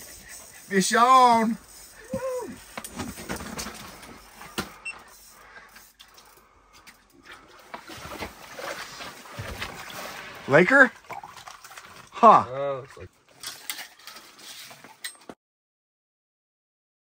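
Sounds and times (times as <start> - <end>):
fishing reel whirring and clicking: 4.2 - 7.0
rustling and small knocks: 5.6 - 10.2.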